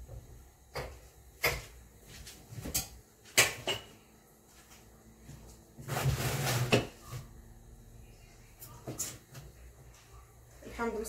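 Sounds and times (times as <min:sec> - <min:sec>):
scraping and rustling: 0:05.8 - 0:07.3.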